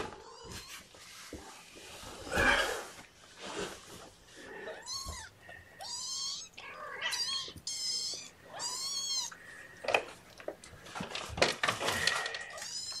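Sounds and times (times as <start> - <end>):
rustling: 0.0 - 6.4, 7.3 - 13.0
kittens meowing: 4.7 - 9.5, 12.4 - 13.0.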